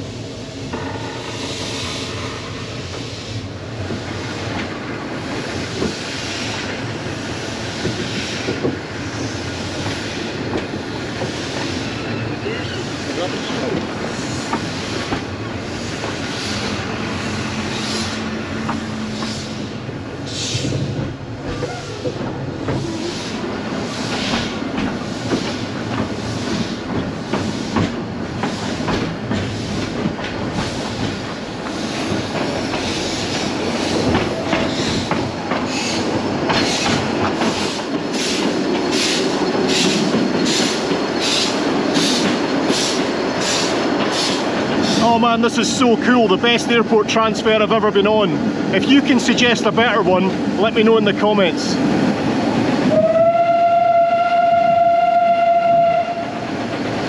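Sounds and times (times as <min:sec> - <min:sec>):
carriages rumbling on track: 0:00.0 - 0:57.0
steam locomotive exhaust beats: 0:12.9 - 0:47.3, 0:51.8 - 0:57.0.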